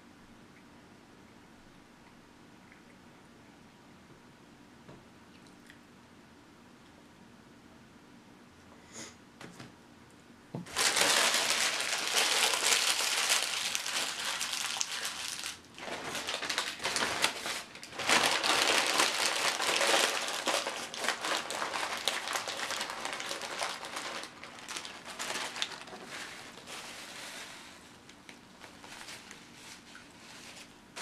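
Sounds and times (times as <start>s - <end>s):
paper wrapper crumpling: 10.7s - 31.0s.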